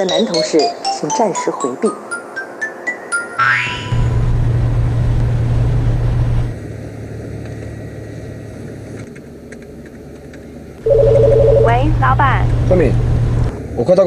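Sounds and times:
car engine and road hum: 3.9s - 14.0s.

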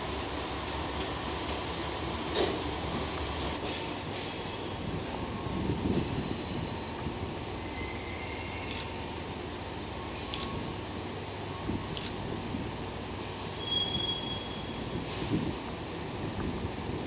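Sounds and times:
faint high squeal: 6.2s - 8.9s, 10.1s - 11.2s, 13.6s - 15.0s.

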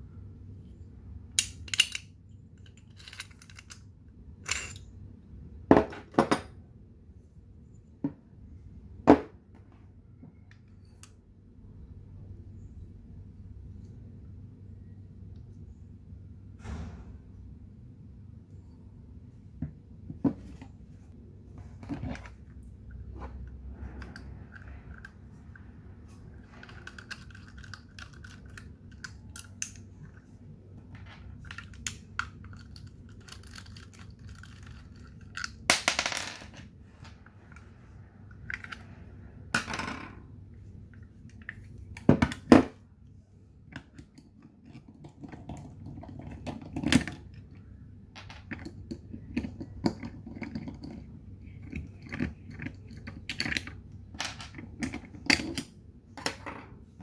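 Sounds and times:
small clicks and scrapes of parts: 1.4s - 4.9s, 21.7s - 35.7s, 37.0s - 39.1s, 40.8s - 42.5s, 43.7s - 56.4s.

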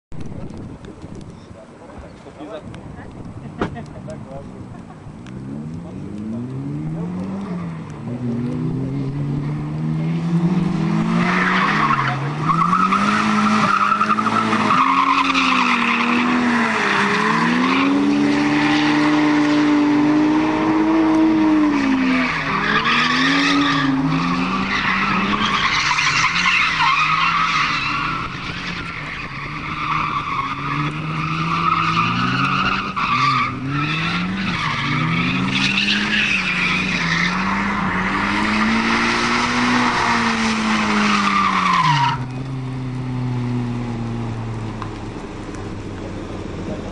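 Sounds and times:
car engine revving: 3.3s - 46.9s
tyres squealing: 11.2s - 19.4s, 21.6s - 42.6s.

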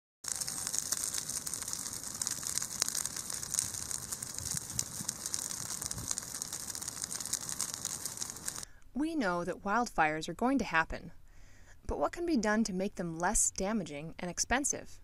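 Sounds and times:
brush fire crackling: 0.2s - 8.7s.

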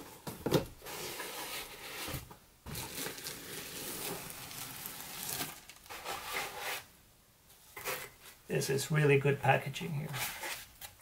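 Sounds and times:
foam blocks rubbing and squeaking: 0.8s - 6.9s
plastic wrap crinkling: 2.7s - 6.3s.

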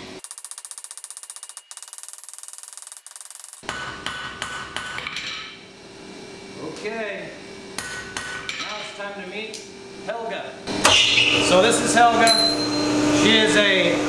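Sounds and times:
hammer striking metal on anvil: 3.6s - 5.6s, 7.8s - 9.0s, 12.2s - 12.9s.

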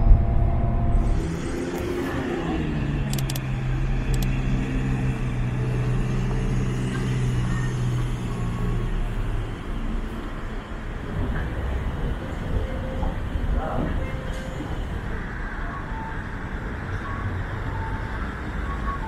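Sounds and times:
vehicle engine running: 0.0s - 10.6s
road traffic noise: 0.0s - 19.0s.

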